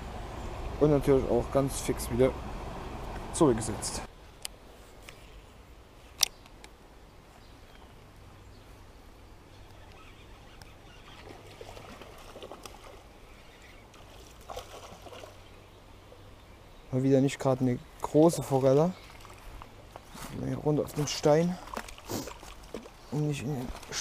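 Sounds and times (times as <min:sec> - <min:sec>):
stream trickling: 0:05.4 - 0:24.0
lure splashing into water: 0:13.9 - 0:15.5.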